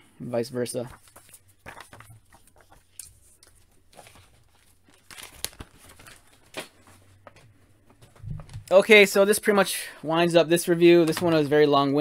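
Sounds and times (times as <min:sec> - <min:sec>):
paper rustling: 0:00.8 - 0:08.8.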